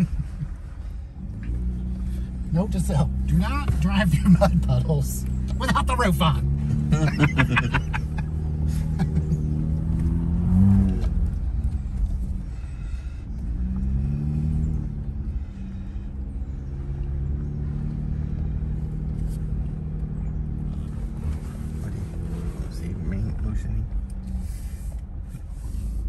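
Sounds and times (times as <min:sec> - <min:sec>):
car engine running: 0:00.0 - 0:26.0.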